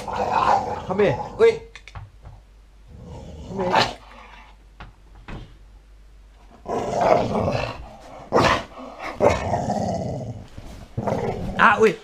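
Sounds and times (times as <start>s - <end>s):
dog growling: 0.0s - 1.7s, 2.9s - 4.6s, 6.6s - 11.8s.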